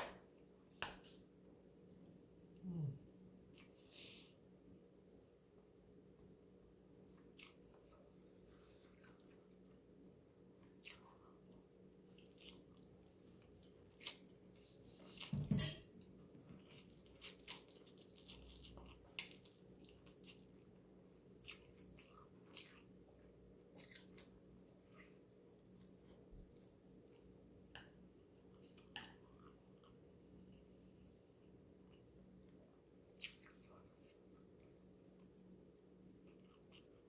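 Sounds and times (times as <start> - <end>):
person chewing: 7.2 - 9.7, 10.6 - 35.4, 36.2 - 37.0.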